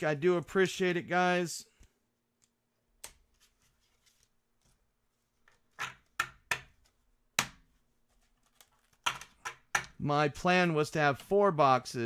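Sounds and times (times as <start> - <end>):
plastic card holders clacking: 8.6 - 10.0.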